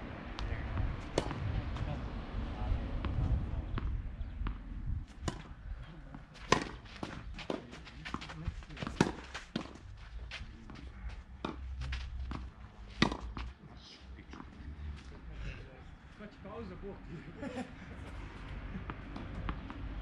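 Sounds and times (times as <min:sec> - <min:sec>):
rackets striking tennis ball: 0:00.4 - 0:01.5, 0:04.5 - 0:05.6, 0:06.4 - 0:09.8, 0:11.4 - 0:13.5
ball bouncing: 0:06.5 - 0:09.8.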